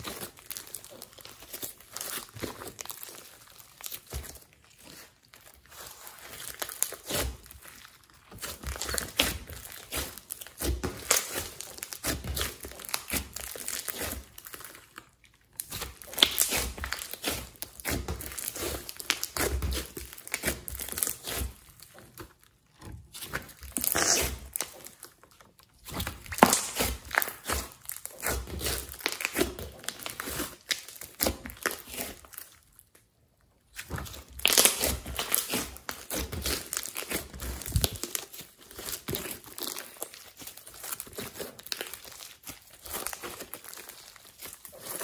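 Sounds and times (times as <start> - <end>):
slime crackling and squishing: 0.0 - 45.0.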